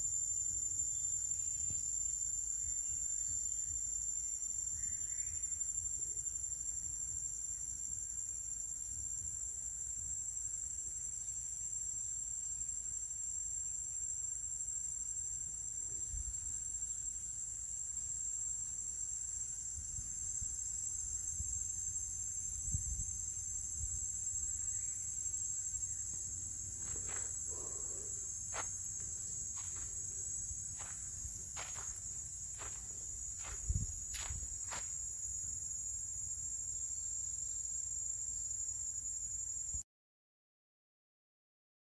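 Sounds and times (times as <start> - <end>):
insect chorus droning: 0.0 - 39.8
footsteps on dry ground: 26.7 - 35.0.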